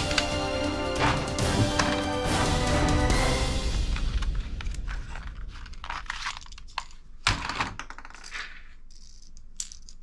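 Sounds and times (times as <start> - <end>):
plastic toy guns clattering: 4.9 - 10.0.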